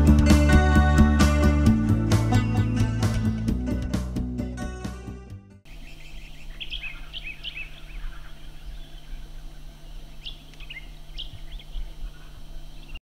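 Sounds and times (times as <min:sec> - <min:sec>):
small birds chirping: 0:05.7 - 0:13.0
steady low hum: 0:05.7 - 0:13.0.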